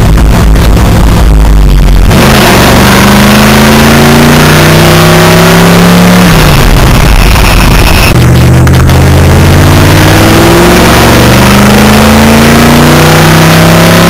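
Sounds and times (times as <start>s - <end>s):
pickup engine accelerating: 0.0s - 14.0s.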